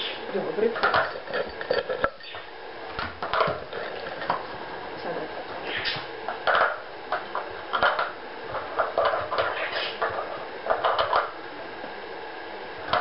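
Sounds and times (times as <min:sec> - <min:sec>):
plastic blocks clicking and knocking: 0:06.4 - 0:11.4.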